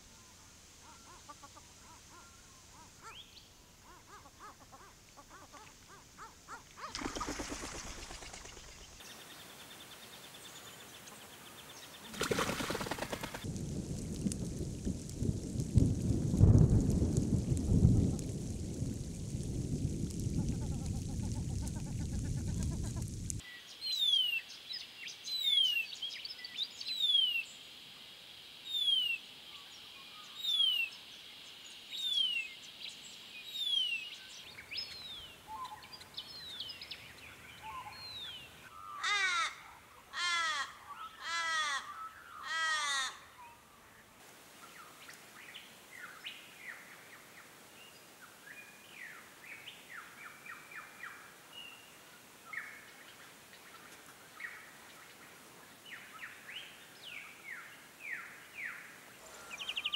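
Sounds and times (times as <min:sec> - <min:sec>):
raven wailing caws: 0:38.8 - 0:43.4
faint small birds chirping: 0:43.3 - 0:59.9.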